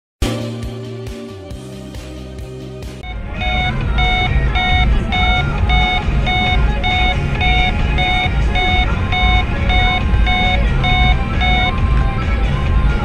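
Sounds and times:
short electronic beeps: 3.0 - 11.9.

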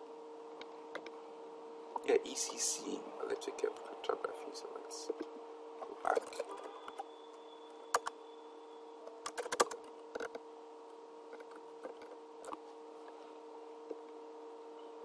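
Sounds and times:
faint steady hum: 0.0 - 15.0
computer keyboard keystrokes: 7.9 - 8.1, 9.2 - 10.4.

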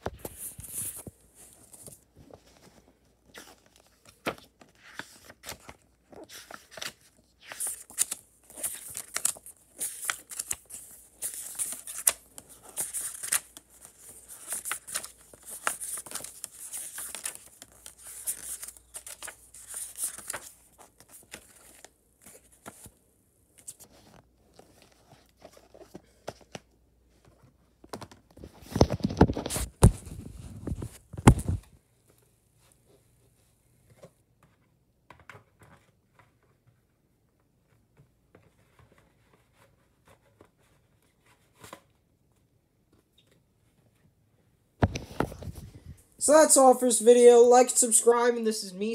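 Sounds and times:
paper pages rustling: 0.0 - 22.9, 23.6 - 31.7, 44.8 - 47.0.

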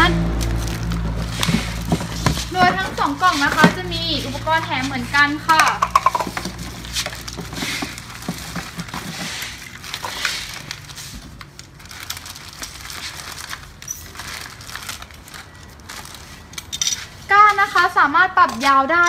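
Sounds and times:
plastic bag crinkling: 0.2 - 17.9
plastic parts clicking on concrete: 5.3 - 19.0.

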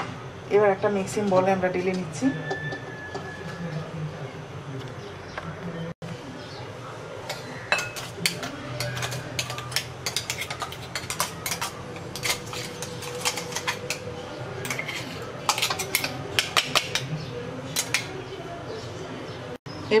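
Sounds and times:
utensil scraping steel jar: 7.3 - 17.0.

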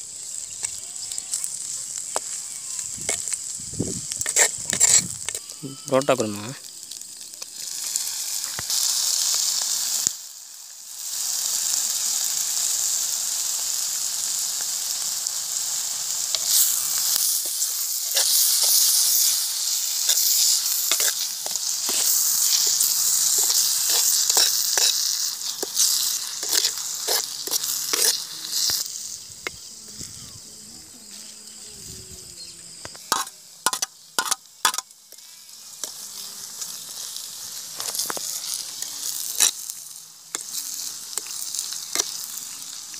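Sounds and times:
blood sizzling in hot oil: 0.0 - 30.2, 32.8 - 42.9
spoon scraping clay pot: 4.2 - 5.4, 20.9 - 28.8.

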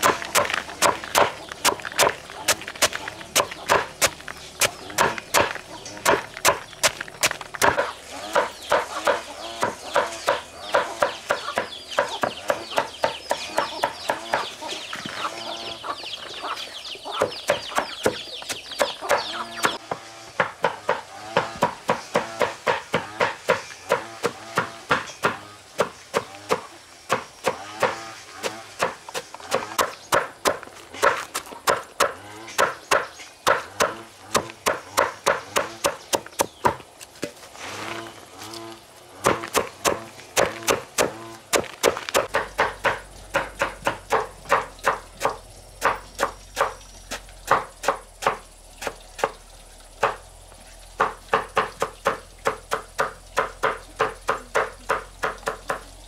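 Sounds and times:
hand tool striking: 0.0 - 14.5
chickens clucking: 0.0 - 36.9.

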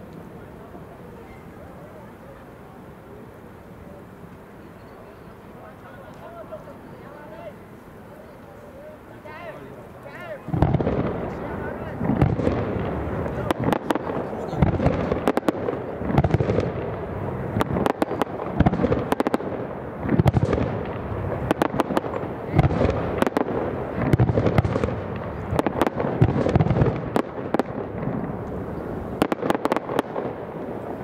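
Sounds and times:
fireworks cracking: 0.0 - 31.0
fireworks booming: 9.2 - 31.0.

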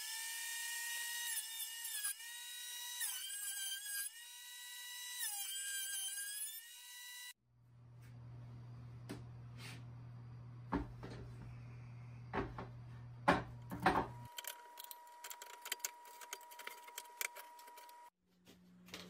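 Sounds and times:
wooden boards knocking: 12.3 - 14.2.

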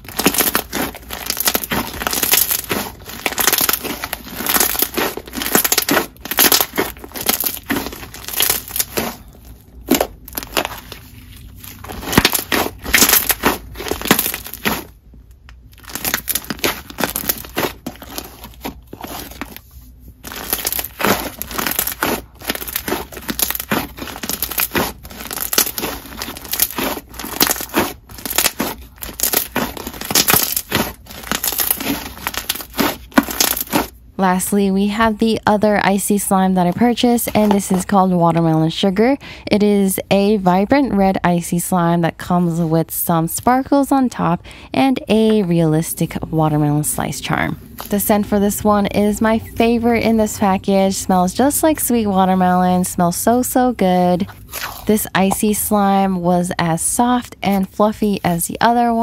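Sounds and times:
slime crunching and popping: 0.0 - 19.6, 20.2 - 34.0, 54.2 - 54.9.

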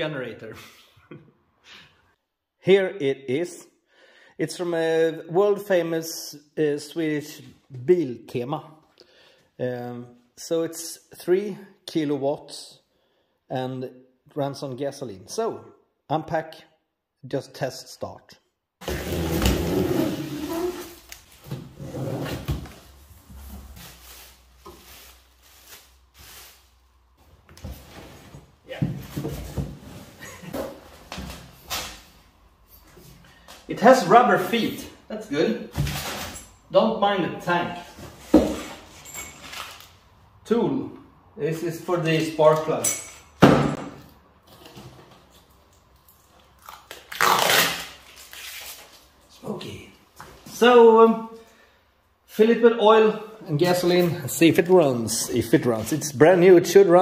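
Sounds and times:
plastic sheet rustling: 19.0 - 21.4, 22.8 - 27.2
faint rustling and handling: 22.7 - 30.2
plastic strapping pulled off: 46.7 - 49.0.

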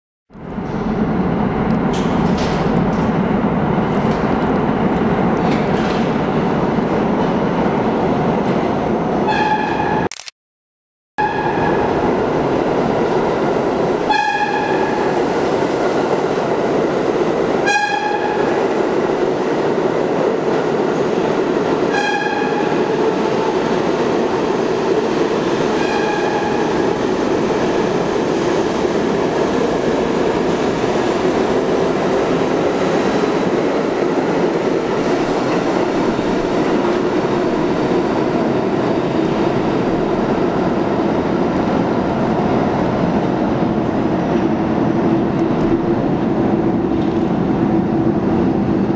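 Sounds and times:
subway train rumbling past: 0.3 - 10.0, 11.2 - 48.9
train air horn blasts: 9.3 - 10.0, 11.2 - 11.8, 14.1 - 15.0, 17.6 - 18.5, 21.9 - 22.8, 25.8 - 26.8.

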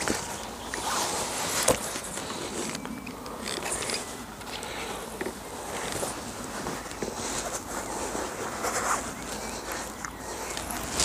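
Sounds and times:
rustling and scraping of net: 0.0 - 11.0.

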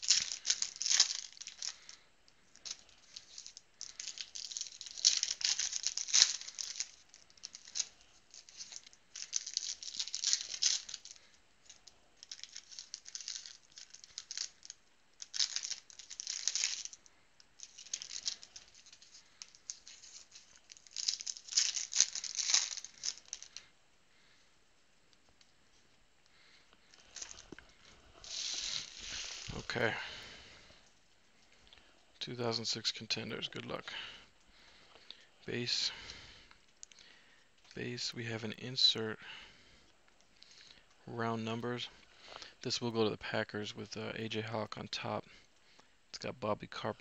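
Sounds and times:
card wrappers crinkling: 0.0 - 24.4, 25.2 - 31.8.

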